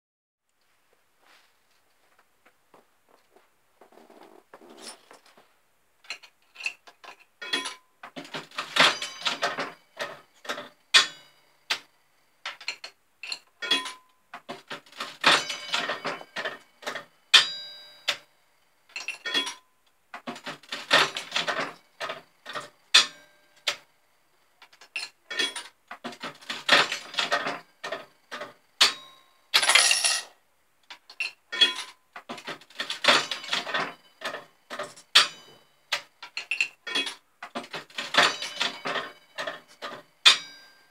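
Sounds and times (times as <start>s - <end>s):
slot reels clattering clicks: 7.4s - 11.8s, 14.6s - 17.0s, 20.3s - 23.8s, 24.7s - 29.0s, 29.6s - 30.3s, 31.1s - 40.5s
slot machine handle pull: 29.6s - 30.3s.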